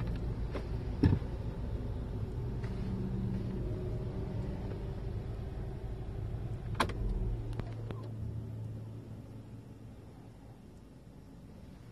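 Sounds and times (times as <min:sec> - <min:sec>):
car engine idling: 0:00.0 - 0:11.9.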